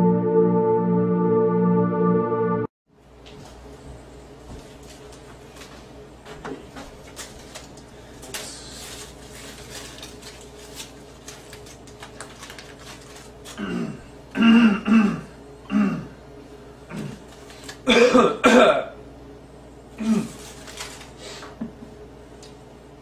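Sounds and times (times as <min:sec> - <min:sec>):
aluminium foil crinkling: 0:06.8 - 0:13.8, 0:17.2 - 0:17.9, 0:20.2 - 0:21.2
harsh coughs: 0:13.6 - 0:16.2, 0:17.9 - 0:19.0, 0:20.0 - 0:20.4
man clearing his throat: 0:13.6 - 0:16.2, 0:17.9 - 0:19.0, 0:20.0 - 0:20.4.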